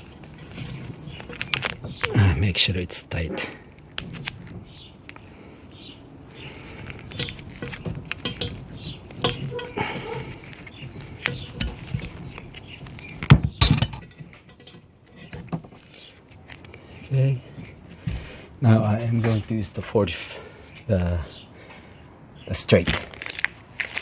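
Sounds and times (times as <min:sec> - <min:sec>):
metal fittings clinking: 0:07.1 - 0:16.0.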